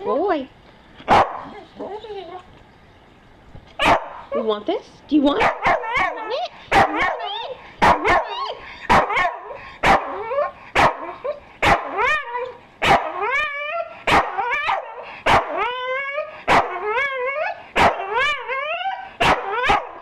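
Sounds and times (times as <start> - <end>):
dog barking sharply: 1.1 - 1.5, 3.8 - 4.2, 5.4 - 7.2, 7.8 - 10.1, 12.8 - 13.1, 17.8 - 18.0, 19.2 - 19.9
dog whining howls: 5.7 - 7.6, 8.2 - 8.6, 10.0 - 20.0.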